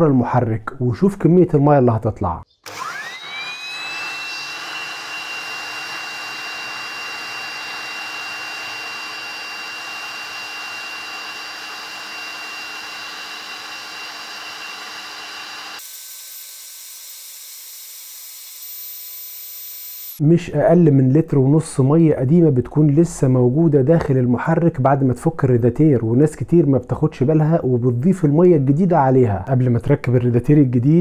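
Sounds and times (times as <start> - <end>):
electric air blower whining: 2.6 - 20.2.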